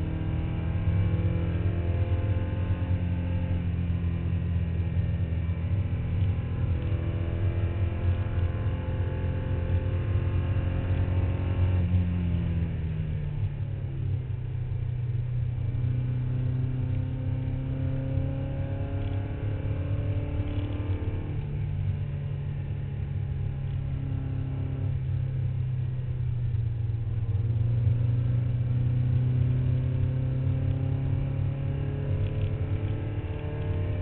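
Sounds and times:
race car engine accelerating: 0:15.8 - 0:25.1, 0:27.5 - 0:34.0.

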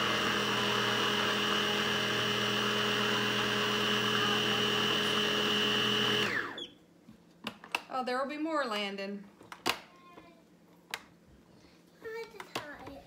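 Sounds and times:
blender motor hum: 0:00.0 - 0:06.7.

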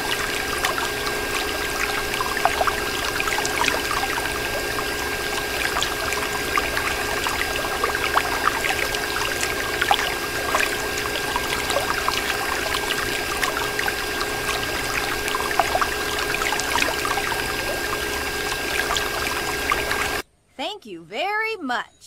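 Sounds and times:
water stream splashing: 0:00.0 - 0:20.2
faint hum: 0:00.0 - 0:21.2.

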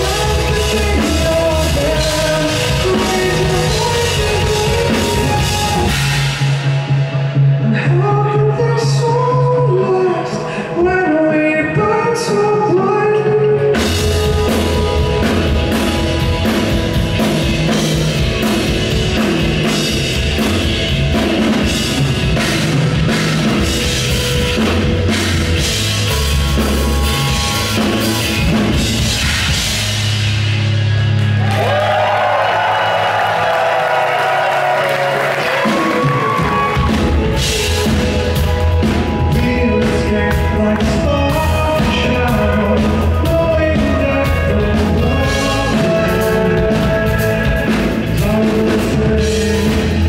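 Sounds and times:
person singing: 0:00.0 - 0:06.9, 0:07.6 - 0:20.6, 0:34.6 - 0:50.0
live metal band playing loudly: 0:00.0 - 0:10.6, 0:12.1 - 0:50.0.

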